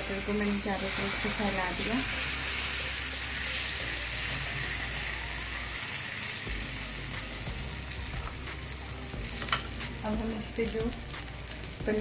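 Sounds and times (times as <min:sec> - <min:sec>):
batter sizzling on griddle: 0:00.0 - 0:12.0.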